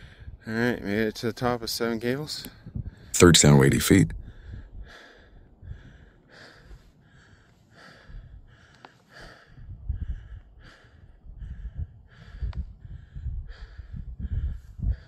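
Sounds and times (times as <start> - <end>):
person breathing hard: 4.2 - 15.0.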